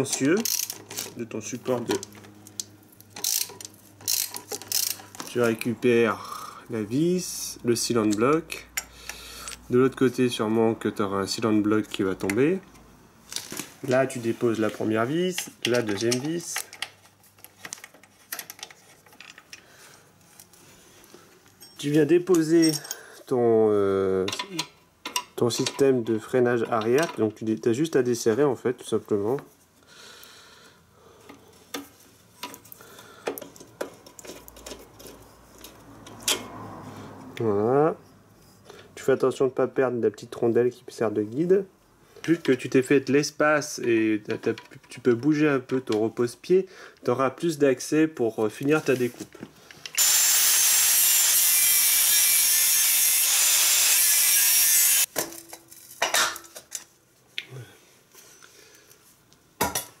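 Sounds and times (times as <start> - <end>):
spanner clicking and scraping: 0.1 - 1.2, 2.0 - 5.4
angle grinder cutting metal pipe: 50.0 - 55.1.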